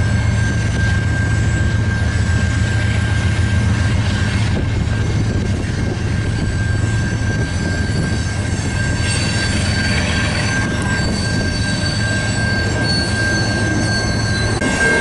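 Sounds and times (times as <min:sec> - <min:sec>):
freight train cars rumbling past: 0:00.0 - 0:15.0
high-pitched wheel squeal: 0:00.0 - 0:15.0.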